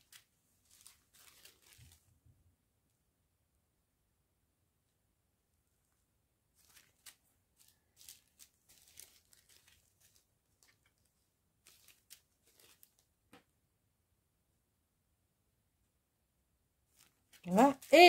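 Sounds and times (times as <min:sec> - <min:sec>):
plastic bags crinkling: 0:00.0 - 0:02.0, 0:06.6 - 0:13.1, 0:16.9 - 0:18.0.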